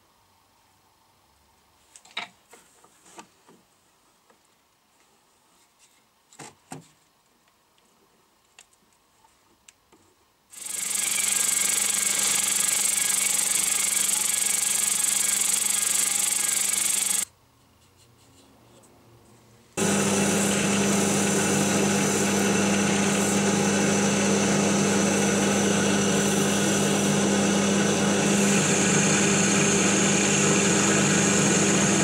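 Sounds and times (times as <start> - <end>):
drill press motor running: 10.6 - 17.3, 19.8 - 32.0.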